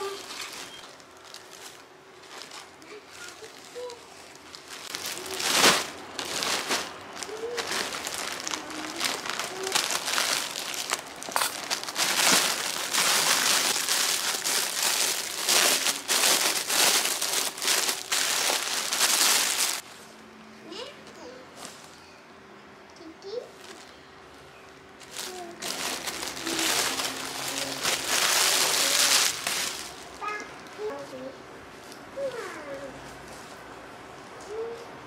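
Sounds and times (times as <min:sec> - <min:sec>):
plastic packaging crinkling: 0:00.0 - 0:19.8, 0:25.0 - 0:30.2.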